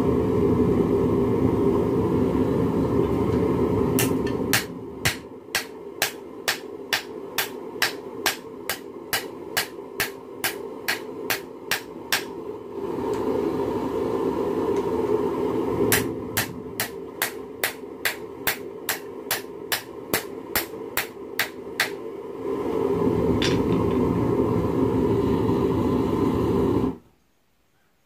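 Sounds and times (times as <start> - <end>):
hammer striking metal on anvil: 4.0 - 12.4, 15.9 - 22.0.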